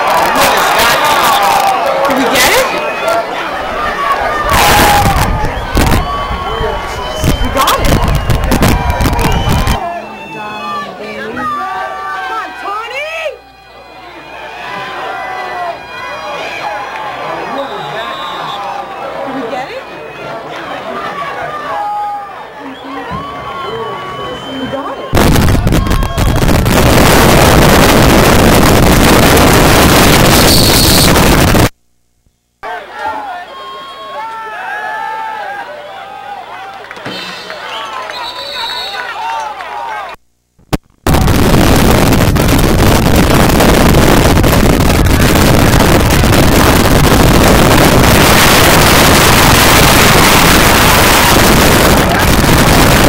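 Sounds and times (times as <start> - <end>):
wind buffeting microphone: 4.8 - 9.8, 41.1 - 53.0
loud steady rushing noise: 25.2 - 31.7, 41.1 - 53.0.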